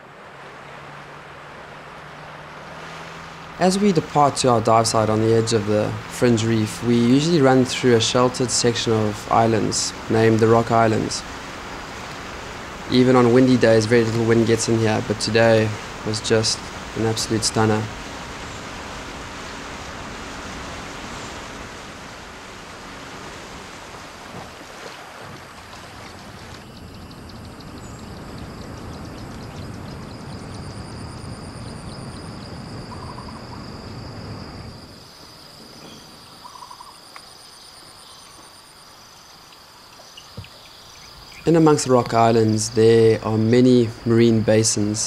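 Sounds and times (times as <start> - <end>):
boat motor: 0.0 - 34.9
water rushing past boat: 0.0 - 36.4.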